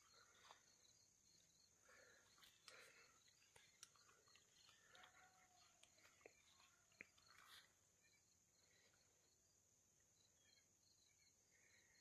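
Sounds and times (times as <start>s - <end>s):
faint chirps and clicks: 0.0s - 9.2s.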